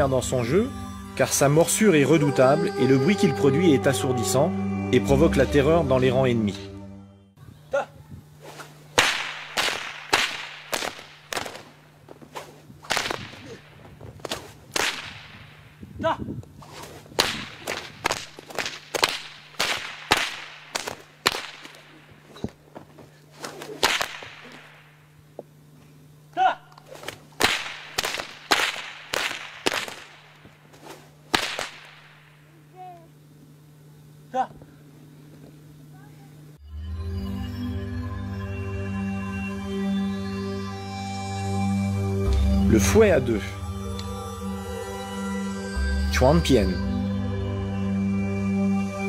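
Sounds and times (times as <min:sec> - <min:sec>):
whip swishing: 0:08.4 - 0:15.6, 0:16.6 - 0:22.5, 0:23.4 - 0:24.8, 0:26.8 - 0:32.1
whip cracking: 0:08.4 - 0:15.7, 0:16.6 - 0:22.2, 0:23.4 - 0:24.9, 0:26.8 - 0:32.3.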